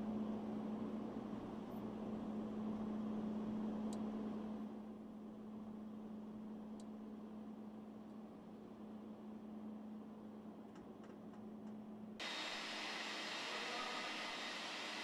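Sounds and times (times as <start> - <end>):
low mechanical hum: 0.0 - 15.0
rushing noise: 12.2 - 15.0.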